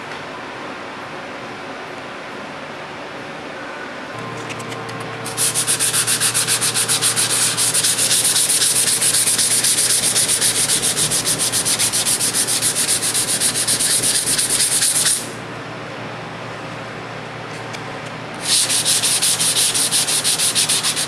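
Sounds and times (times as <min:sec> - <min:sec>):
sandpaper rasping back and forth: 0:05.3 - 0:15.4, 0:18.4 - 0:21.0.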